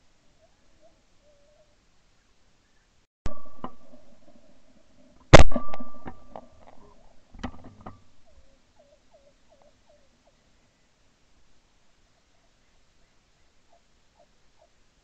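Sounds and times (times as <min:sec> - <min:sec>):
shotgun shots with echo: 0:05.3 - 0:06.3.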